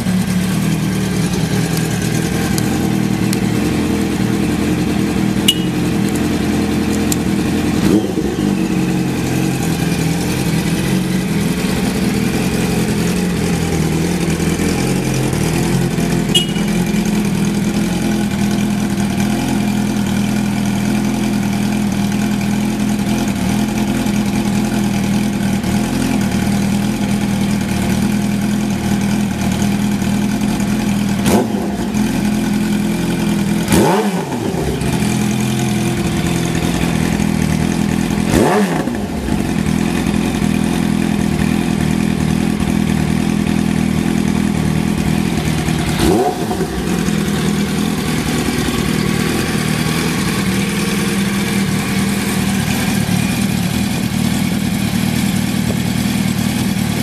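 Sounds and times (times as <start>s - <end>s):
motorcycle engine idling: 0.0s - 57.0s
engine throttle blips: 1.2s - 17.5s.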